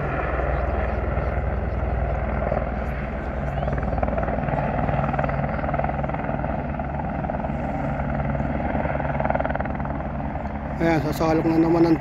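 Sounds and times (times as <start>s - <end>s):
helicopter rotor beating: 0.0s - 12.0s.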